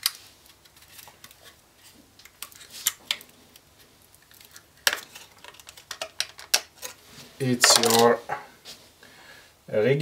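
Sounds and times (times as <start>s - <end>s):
plastic case clicking and crackling: 4.2s - 7.0s.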